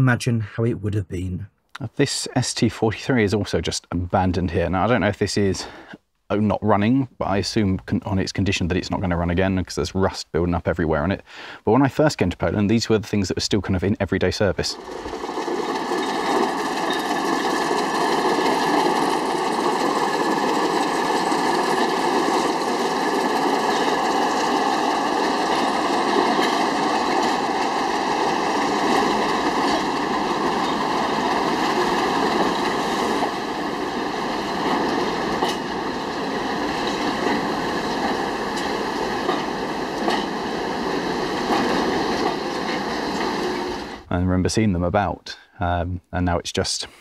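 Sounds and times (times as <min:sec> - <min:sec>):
locomotive engine running: 0:14.6 - 0:44.1
knocks from train: 0:34.4 - 0:35.8, 0:36.6 - 0:40.6.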